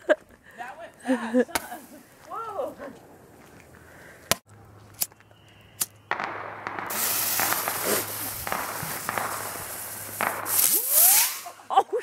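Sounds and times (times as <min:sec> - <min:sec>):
firework hissing and crackling: 0:06.1 - 0:11.8.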